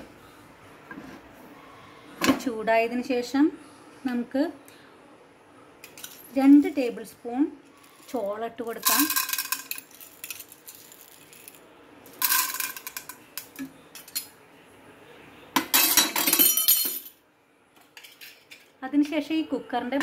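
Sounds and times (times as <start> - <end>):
popcorn rattling in pressure cooker: 7.8 - 11.6.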